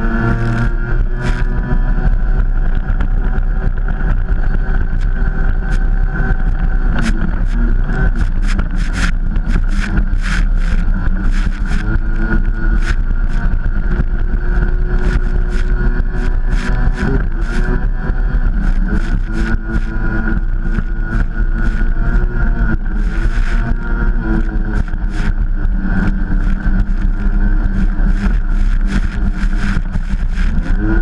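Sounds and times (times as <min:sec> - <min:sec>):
jet ski engine running: 0:00.0 - 0:31.0
wind on microphone: 0:00.0 - 0:31.0.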